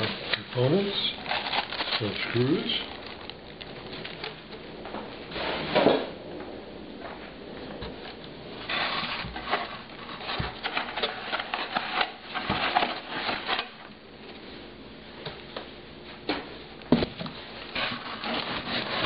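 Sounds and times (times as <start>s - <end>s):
paper and cardboard rustling: 0.0s - 4.6s, 8.0s - 14.4s, 17.0s - 19.0s.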